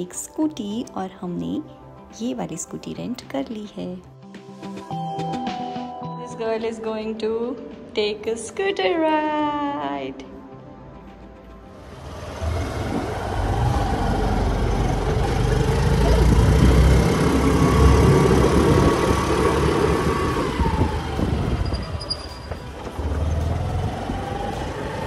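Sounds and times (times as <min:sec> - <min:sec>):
scooter engine running: 0:11.8 - 0:25.0
wind buffeting microphone: 0:12.2 - 0:14.7, 0:15.8 - 0:25.0.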